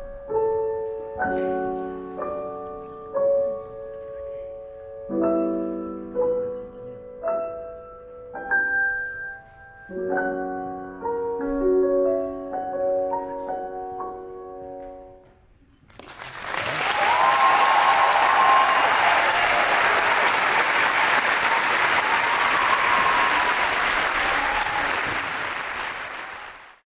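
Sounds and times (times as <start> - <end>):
audience applauding: 15.9 - 26.8
whooping cheers: 16.5 - 26.6.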